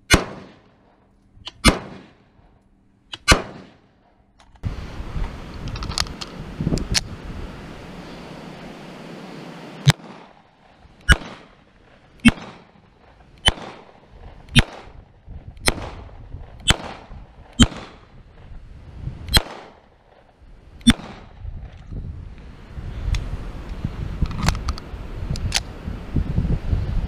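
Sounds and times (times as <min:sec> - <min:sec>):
pistol shots: 0:00.1 - 0:00.8, 0:01.5 - 0:02.2, 0:03.1 - 0:03.8, 0:09.9 - 0:10.4, 0:11.0 - 0:11.6, 0:12.2 - 0:15.0, 0:15.6 - 0:18.1, 0:19.3 - 0:21.4.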